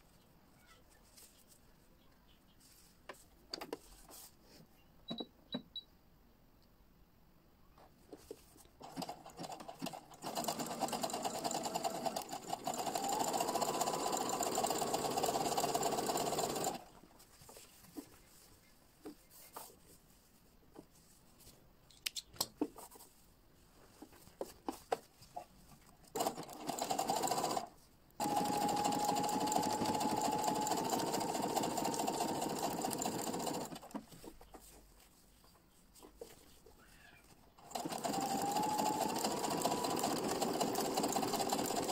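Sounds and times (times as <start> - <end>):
sewing machine whining: 8.8 - 16.9, 26.2 - 33.9, 37.6 - 41.9.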